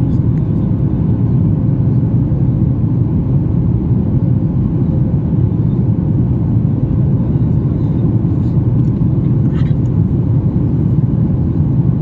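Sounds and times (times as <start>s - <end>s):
jet airliner cabin rumble: 0.0s - 12.0s.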